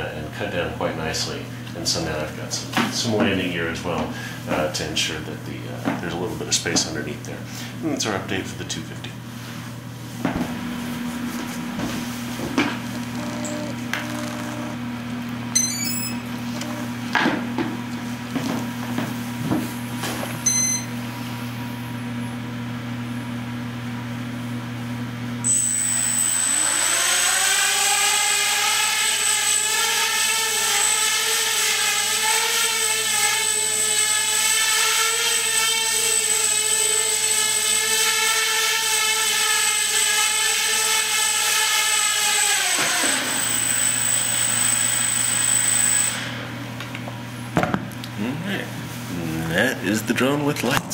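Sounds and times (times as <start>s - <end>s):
drone motors buzzing: 11.8s - 17.2s, 25.4s - 46.4s.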